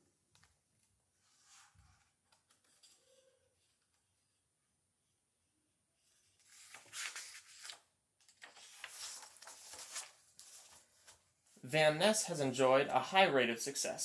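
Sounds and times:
paper pages turning: 1.3s - 4.0s, 6.3s - 11.3s.

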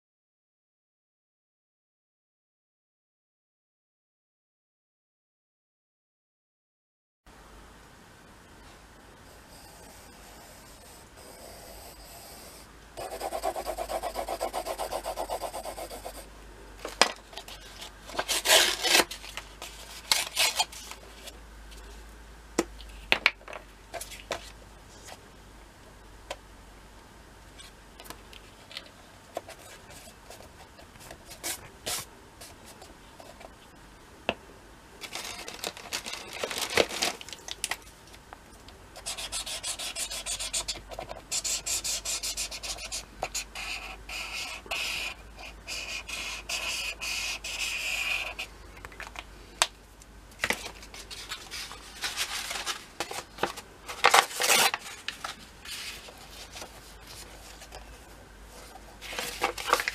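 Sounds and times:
marker scratching on paper: 9.5s - 16.3s, 39.0s - 48.5s
paper being rubbed by hand: 9.6s - 16.3s, 39.0s - 48.5s.

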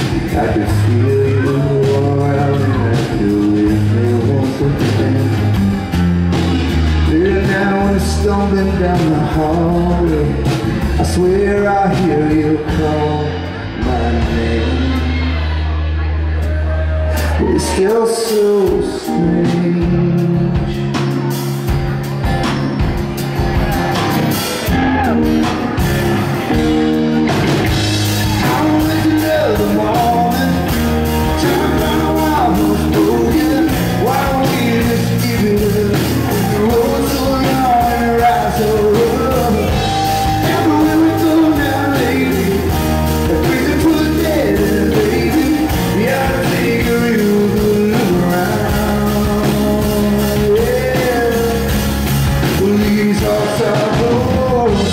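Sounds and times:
man singing: 0.0s - 6.0s, 6.7s - 21.7s, 27.7s - 54.9s
rock band playing: 0.0s - 54.9s
drum beat: 19.6s - 54.9s.

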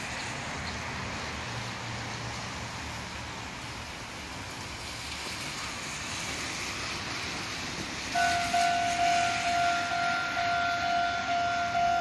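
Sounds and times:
level crossing bell clanging: 8.2s - 12.0s.

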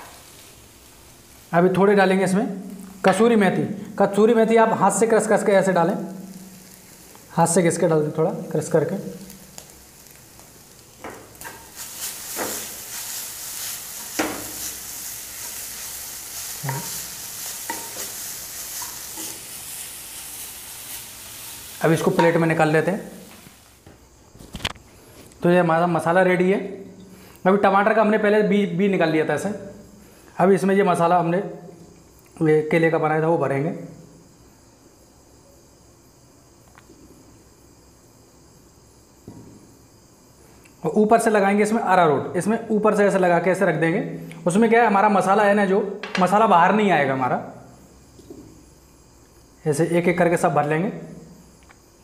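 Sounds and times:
food sizzling: 0.0s - 25.3s
crickets chirping: 0.0s - 52.0s
spatula scraping a pan: 16.3s - 20.3s.

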